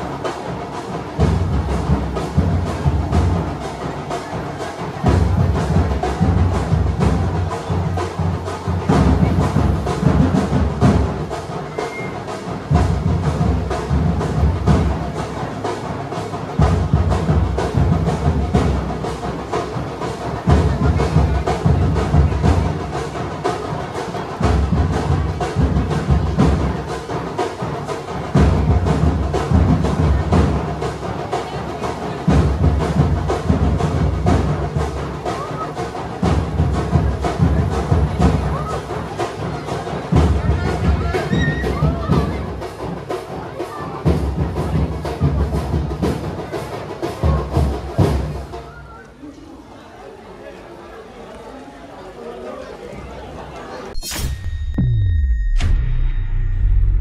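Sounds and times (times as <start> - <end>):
heavy low drum strokes: 0.0 - 48.6, 54.0 - 57.0
music with fast rhythmic drumming: 0.0 - 49.0.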